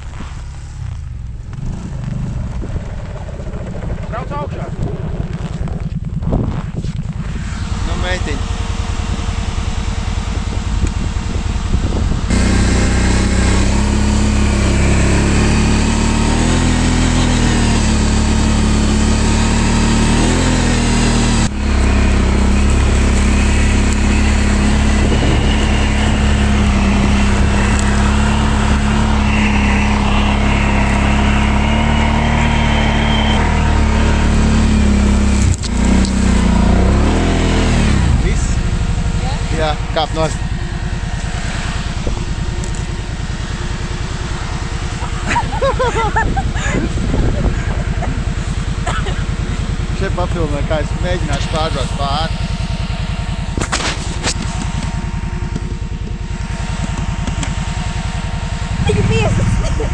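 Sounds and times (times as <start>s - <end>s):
atv engine running under load: 0.0s - 59.9s
tyres churning snow: 0.0s - 59.9s.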